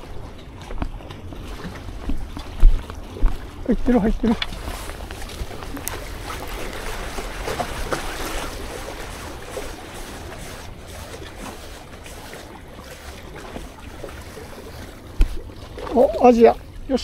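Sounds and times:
sea water washing: 0:00.0 - 0:17.0
wind rumbling on microphone: 0:00.0 - 0:17.0.

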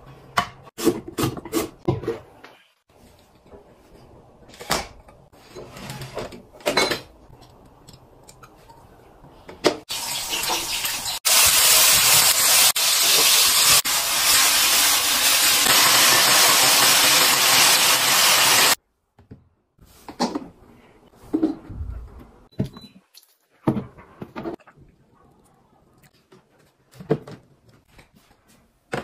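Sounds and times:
vegetables sizzling in hot oil: 0:09.9 - 0:18.8.

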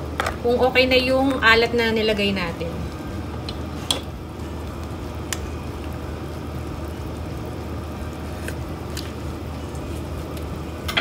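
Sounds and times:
soup bubbling in a pot: 0:03.0 - 0:11.0.

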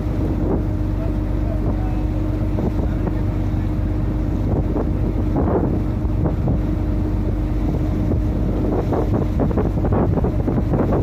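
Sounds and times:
boat engine running: 0:00.0 - 0:11.0
wind buffeting microphone: 0:00.0 - 0:11.0.

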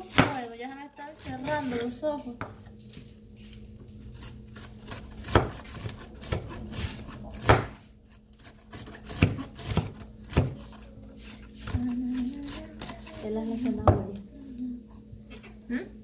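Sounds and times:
knife slicing cabbage: 0:04.1 - 0:13.8.

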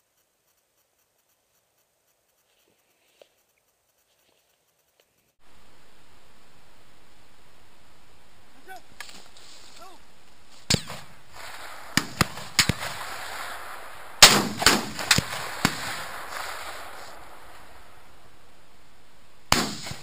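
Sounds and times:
gunshots with echo: 0:10.7 - 0:18.0, 0:19.5 - 0:20.0.

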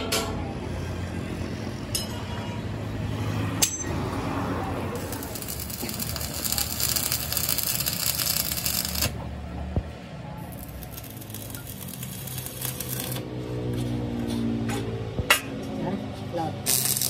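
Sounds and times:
arc welding crackling and sizzling: 0:04.8 - 0:09.3, 0:10.4 - 0:13.4, 0:16.6 - 0:17.0.

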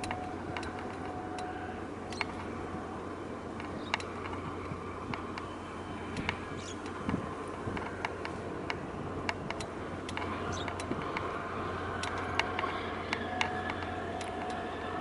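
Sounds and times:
faint steady tones: 0:00.0 - 0:15.0
steady low hum: 0:00.0 - 0:15.0
scattered sharp clicks: 0:07.8 - 0:11.3, 0:12.0 - 0:14.6.

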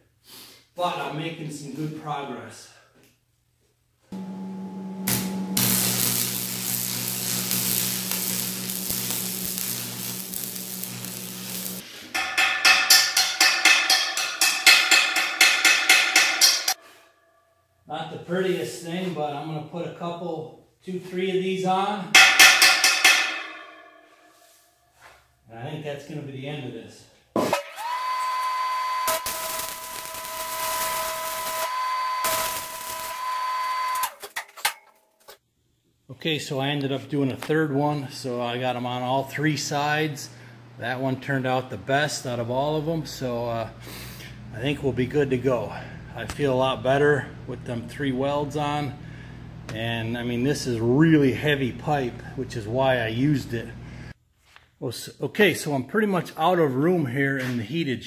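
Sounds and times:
electrical hum: 0:04.2 - 0:11.8, 0:39.2 - 0:54.1
steady high whine: 0:04.2 - 0:12.8
welding arc crackling: 0:04.2 - 0:16.8, 0:27.8 - 0:34.1
chipping hammer striking metal pipe: 0:05.1 - 0:16.8, 0:22.2 - 0:24.3.

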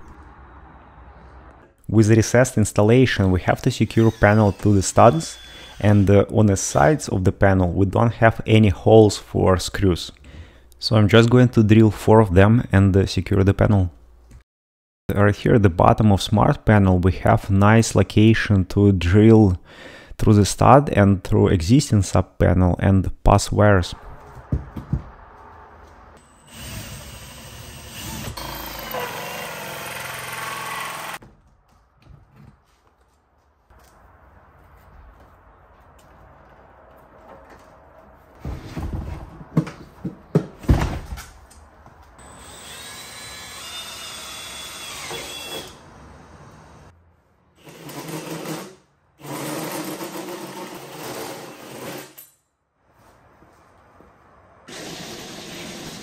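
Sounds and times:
drill hole saw cutting wood: 0:03.8 - 0:06.1, 0:26.2 - 0:31.2, 0:42.2 - 0:46.8, 0:54.7 - 0:56.0.

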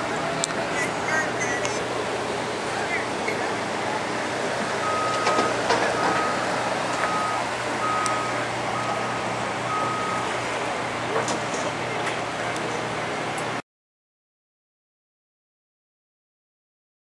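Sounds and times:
steady background noise: 0:00.0 - 0:13.6
electronic reversing beeps: 0:04.8 - 0:10.4.

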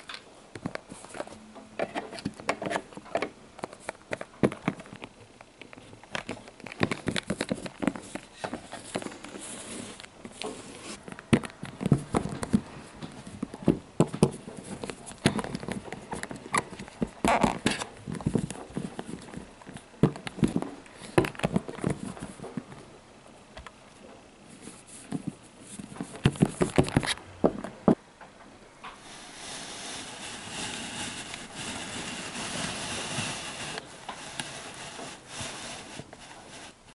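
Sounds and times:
handling rustle: 0:00.0 - 0:22.9, 0:23.9 - 0:27.8
steady hiss: 0:02.0 - 0:27.2, 0:27.9 - 0:36.9.

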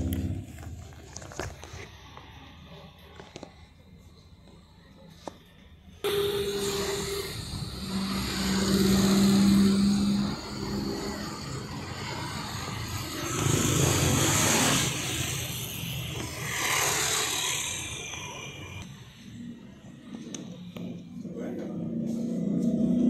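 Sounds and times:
fan noise: 0:06.0 - 0:18.4
rush of noise: 0:06.1 - 0:20.8.

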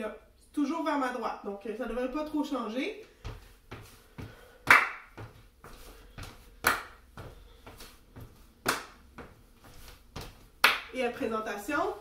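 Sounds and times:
sneaker footsteps on hardwood: 0:03.1 - 0:10.6.

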